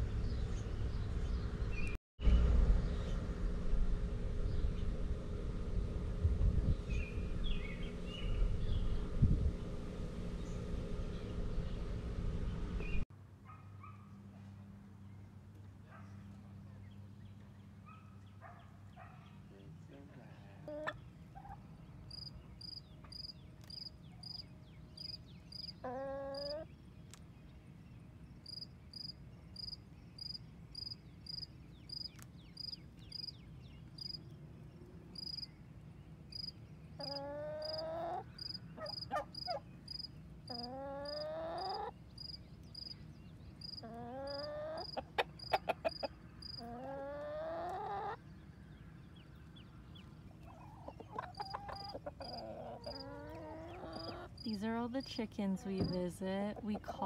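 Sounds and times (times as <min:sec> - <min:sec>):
chickens calling: 0:20.5 - 0:21.8, 0:25.5 - 0:26.7, 0:36.9 - 0:39.9, 0:40.5 - 0:42.4, 0:43.6 - 0:57.0.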